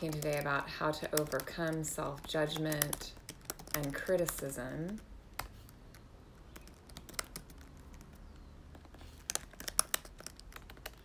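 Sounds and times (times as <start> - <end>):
soft keyboard typing: 0.0 - 11.0.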